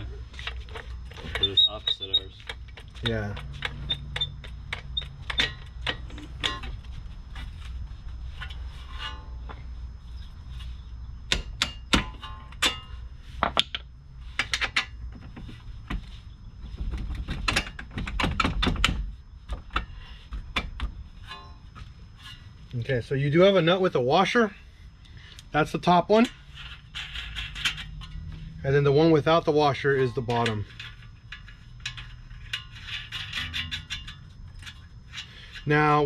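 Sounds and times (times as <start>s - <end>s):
metallic clicks and knocks of tools: 2.4s - 6.8s.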